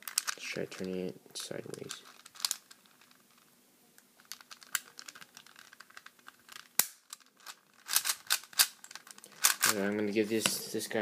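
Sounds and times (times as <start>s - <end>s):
sharp plastic snap: 6.8s - 7.1s.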